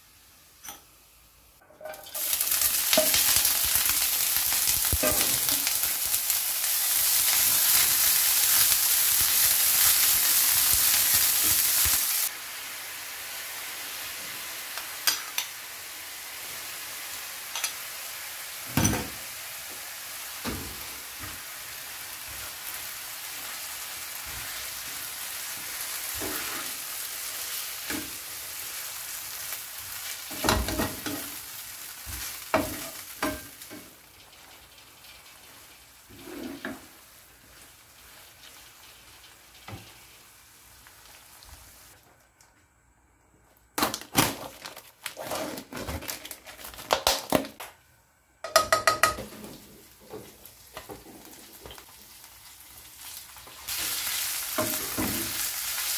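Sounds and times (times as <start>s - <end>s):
food sizzling in a frying pan: 0.0s - 42.0s, 48.8s - 55.9s
wooden spatula scraping pan: 36.1s - 36.9s.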